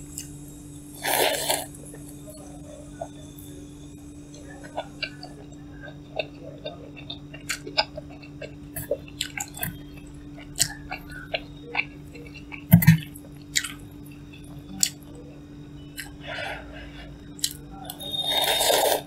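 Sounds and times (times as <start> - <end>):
steady low hum: 0.0 - 19.0
person chewing noodles: 1.0 - 2.1, 4.6 - 15.1, 15.9 - 16.2, 17.3 - 19.0.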